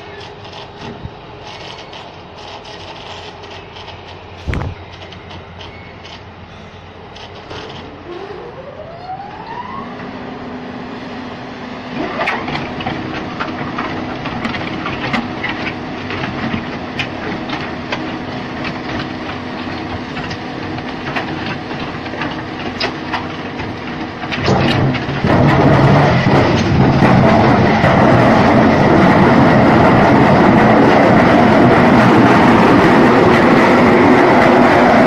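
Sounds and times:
machine drive whine and hum: 0:00.0 - 0:35.0
knocks and rattles: 0:12.4 - 0:30.2.

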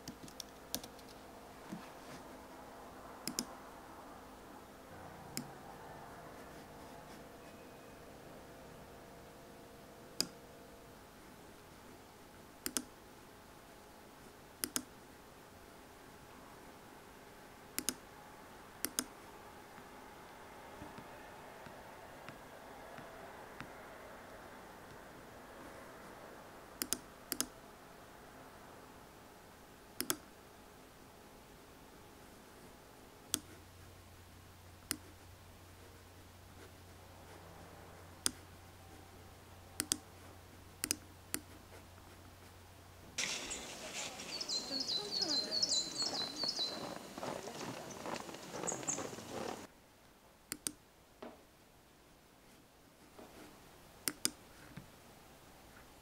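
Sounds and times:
computer mouse clicking: 0:00.0 - 0:01.8, 0:03.2 - 0:03.5, 0:05.3 - 0:05.5, 0:12.6 - 0:12.9, 0:14.6 - 0:14.9, 0:17.8 - 0:18.0, 0:18.8 - 0:19.1, 0:26.8 - 0:27.5, 0:30.0 - 0:30.3, 0:33.3 - 0:33.6, 0:34.8 - 0:35.2, 0:38.2 - 0:38.5, 0:39.8 - 0:40.1, 0:40.8 - 0:41.6, 0:50.5 - 0:50.8, 0:54.0 - 0:54.4
faint room hiss: 0:00.0 - 0:56.0.

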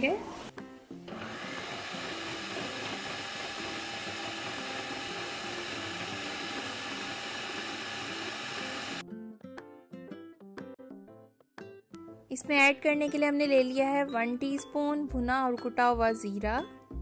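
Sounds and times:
plucked background music: 0:00.0 - 0:17.0
food processor motor chopping: 0:01.0 - 0:09.0.

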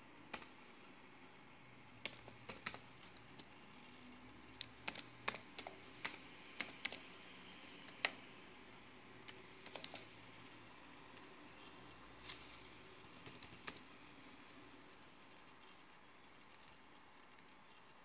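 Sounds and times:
laptop keyboard typing: 0:00.2 - 0:00.9, 0:01.8 - 0:11.7, 0:12.4 - 0:14.1.

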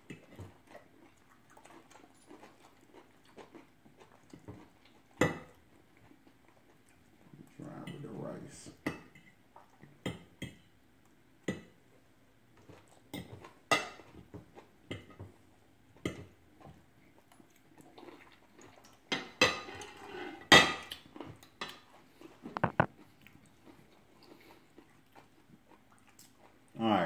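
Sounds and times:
forks tapping and scraping plates: 0:22.6 - 0:22.9.

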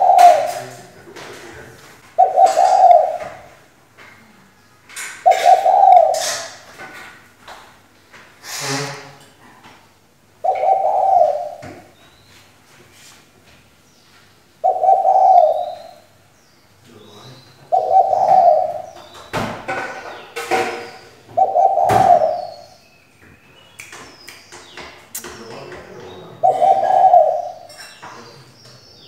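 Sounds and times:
dove cooing: 0:00.0 - 0:03.6, 0:05.2 - 0:06.7, 0:10.4 - 0:12.0, 0:14.6 - 0:16.2, 0:17.6 - 0:19.2, 0:19.8 - 0:22.8, 0:25.8 - 0:27.8
small birds chirping: 0:00.0 - 0:07.0, 0:10.3 - 0:29.0.

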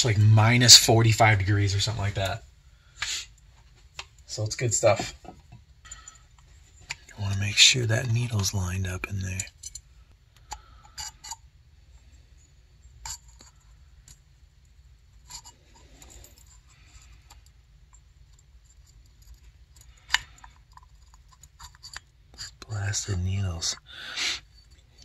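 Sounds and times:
small metal parts clicking and scraping: 0:05.8 - 0:25.0.

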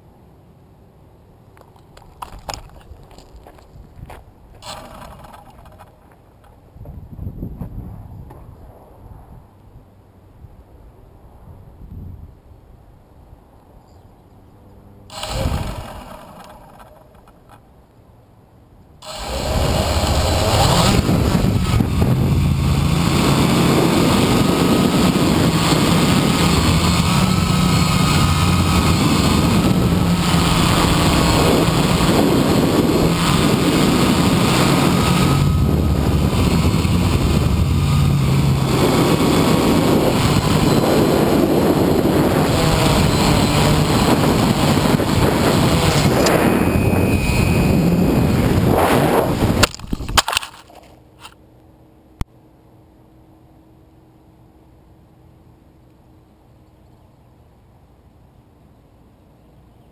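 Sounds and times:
wind noise: 0:01.7 - 0:13.4, 0:15.1 - 0:17.2, 0:19.0 - 0:50.4
quadcopter motors buzzing: 0:04.6 - 0:06.0, 0:15.1 - 0:17.6, 0:19.0 - 0:49.6.

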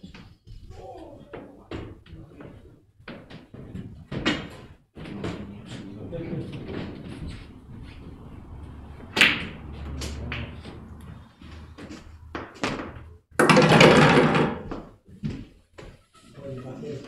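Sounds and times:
loud rushing noise: 0:05.5 - 0:12.8
cue striking ball: 0:06.6 - 0:11.7.

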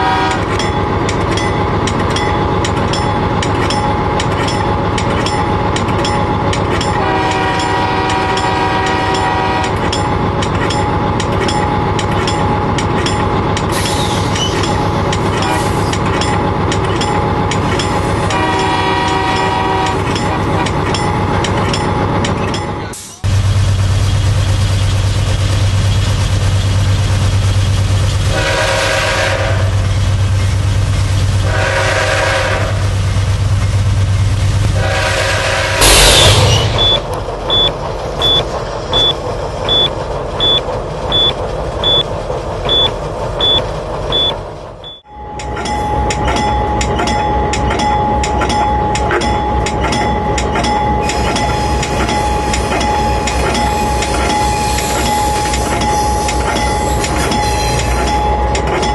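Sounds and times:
locomotive horn blasts: 0:00.0 - 0:00.6, 0:06.9 - 0:09.8, 0:18.2 - 0:20.7, 0:28.3 - 0:29.8, 0:31.4 - 0:32.8, 0:34.8 - 0:36.7
locomotive engine drone: 0:00.0 - 0:58.9
train running noise: 0:00.0 - 0:58.9
loud crash: 0:35.8 - 0:37.1
cab alarm beeping: 0:35.8 - 0:42.1, 0:42.7 - 0:58.9.

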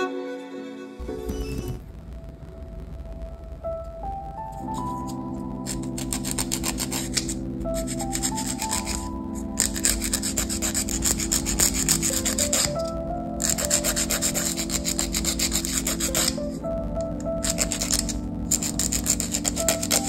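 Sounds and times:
soft background music: 0:00.0 - 0:20.0
nail file scraping fingernails: 0:05.6 - 0:16.4, 0:17.4 - 0:20.0.

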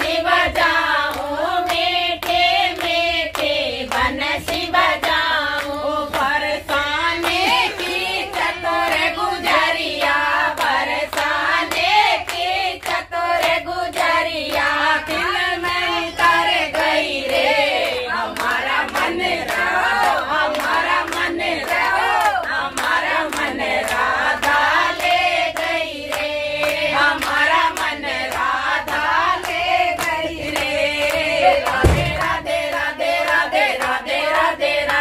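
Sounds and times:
voices singing together: 0:00.0 - 0:35.0
hands clapping in time: 0:17.3 - 0:35.0.

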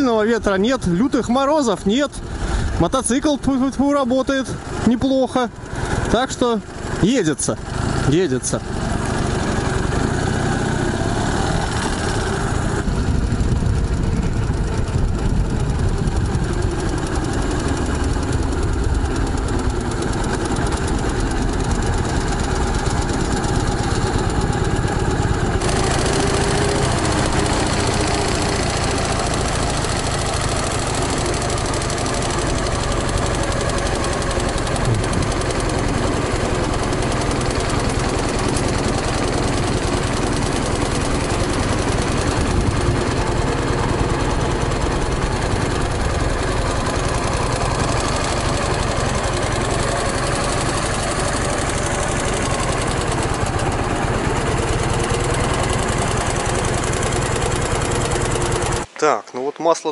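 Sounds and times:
motorcycle engine running: 0:00.0 - 0:59.1.

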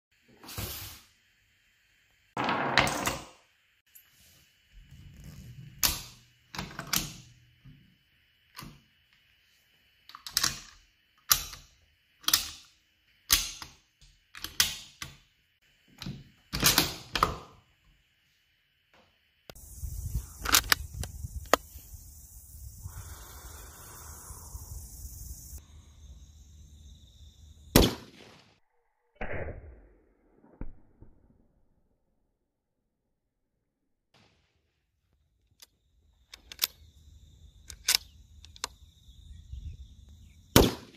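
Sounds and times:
wind buffeting microphone: 0:19.6 - 0:23.5
rifle shot: 0:27.7 - 0:28.5, 0:40.6 - 0:40.9
rifle bolt metallic clicks: 0:36.3 - 0:36.8, 0:37.7 - 0:38.7.

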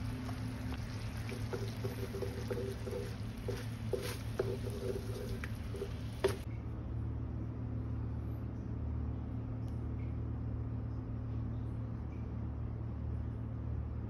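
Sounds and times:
steady low hum: 0:00.0 - 0:14.0
wooden spatula knocking on wok: 0:01.3 - 0:06.4.

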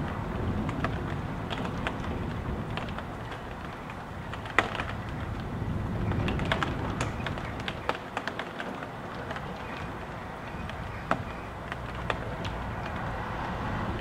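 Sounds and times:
gusting wind rumble: 0:00.0 - 0:14.0
raindrops tapping hard surface: 0:00.0 - 0:14.0.

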